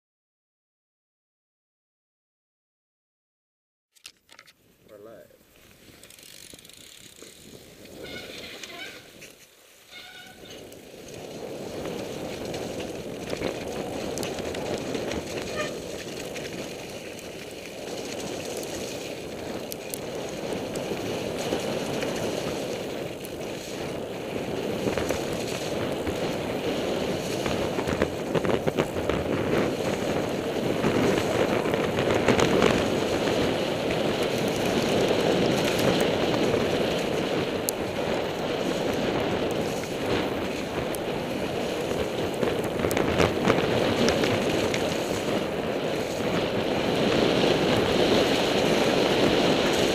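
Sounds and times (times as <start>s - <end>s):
bike clicks and knocks: 3.9s - 4.6s, 5.8s - 23.6s
wind rushing over microphone: 5.0s - 9.3s, 9.9s - 49.9s
tyres rolling over snow: 5.4s - 49.9s.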